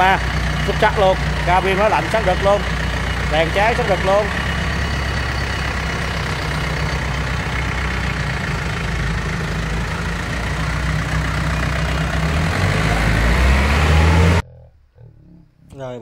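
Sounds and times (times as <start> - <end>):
diesel tractor engine idling: 0.0 - 14.4.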